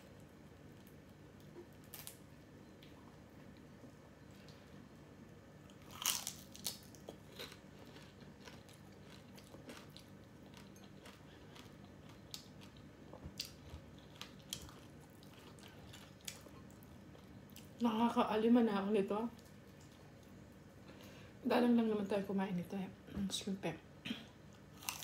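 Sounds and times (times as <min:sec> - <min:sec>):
crunching and chewing fried shrimp: 0:00.2 - 0:03.7, 0:05.6 - 0:17.8, 0:19.3 - 0:21.1, 0:24.5 - 0:25.0.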